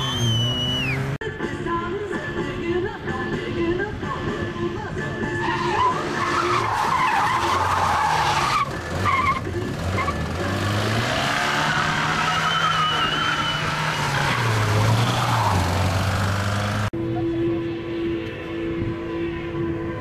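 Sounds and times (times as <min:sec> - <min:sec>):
tyres squealing: 0:05.2 - 0:16.8
car engine revving hard: 0:07.9 - 0:16.9.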